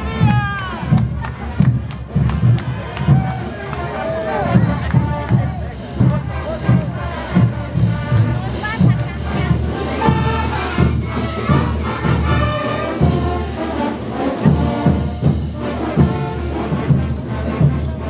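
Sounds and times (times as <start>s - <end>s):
brass band playing: 0.0s - 18.0s
steady drum beat: 0.0s - 18.0s.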